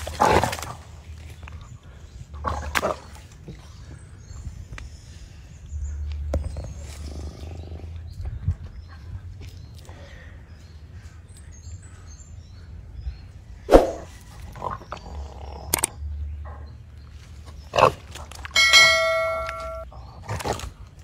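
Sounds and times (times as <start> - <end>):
bell-like chime: 18.6 - 19.8.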